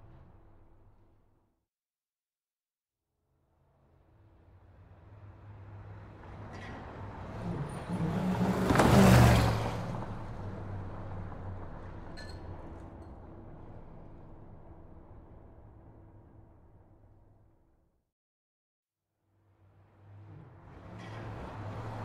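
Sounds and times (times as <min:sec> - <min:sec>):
steady traffic noise: 0:03.5 - 0:17.4, 0:19.4 - 0:22.0
vehicle driving past: 0:04.2 - 0:16.4, 0:19.6 - 0:22.0.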